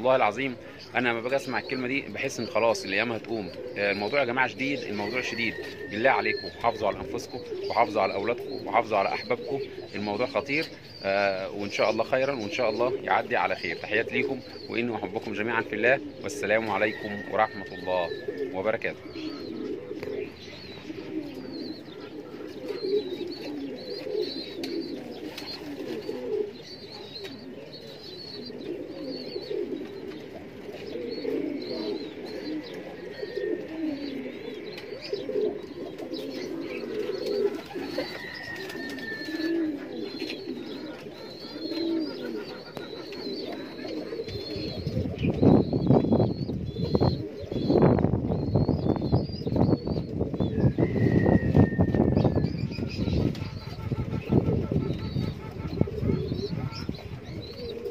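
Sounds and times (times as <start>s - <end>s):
pigeons cooing: 0.0s - 57.9s
small birds chirping: 0.0s - 57.9s.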